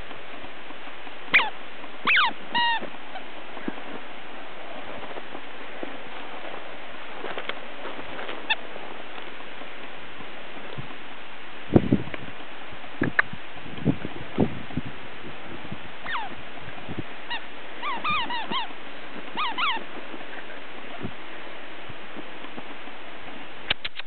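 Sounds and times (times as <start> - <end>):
puppy yipping: 1.3 - 1.5, 2.1 - 2.8, 16.1 - 16.3, 17.3 - 18.7, 19.4 - 19.8.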